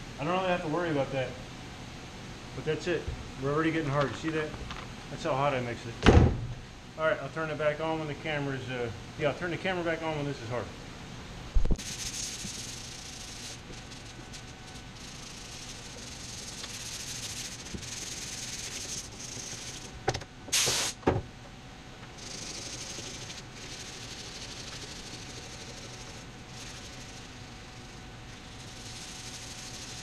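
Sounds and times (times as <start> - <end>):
thump: 6.0 - 6.5
sandpaper rasping on filler: 11.8 - 19.9, 22.2 - 30.0.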